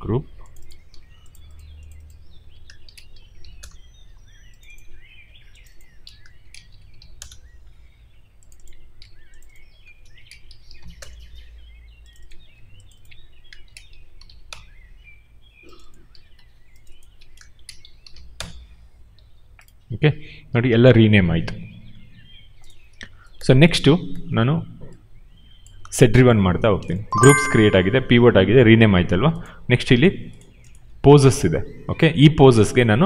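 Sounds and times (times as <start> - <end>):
small birds chirping: 0.0 - 20.4, 21.3 - 23.8, 24.8 - 27.9
computer mouse clicks: 0.4 - 3.9, 5.6 - 7.5, 8.4 - 11.4, 12.0 - 14.8, 15.7 - 18.7, 19.6 - 19.8.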